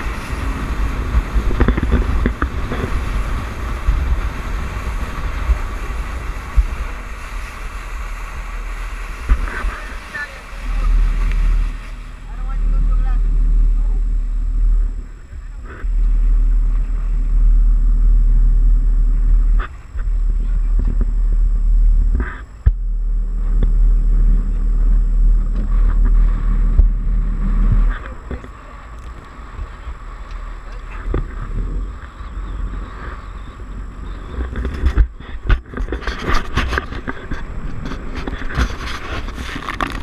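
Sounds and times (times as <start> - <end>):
knocks and splashes: 0.0 - 13.7
boat engine drone: 0.0 - 40.0
heavy low rumble: 0.0 - 40.0.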